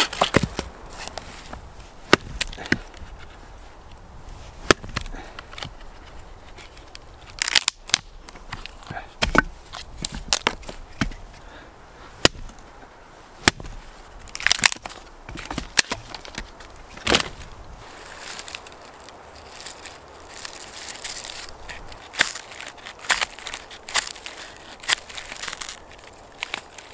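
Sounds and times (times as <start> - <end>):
hatchet chopping log: 0.0 - 1.2, 2.1 - 3.0, 4.6 - 5.8, 7.3 - 11.3, 12.2 - 12.6, 13.4 - 13.8, 14.4 - 17.4.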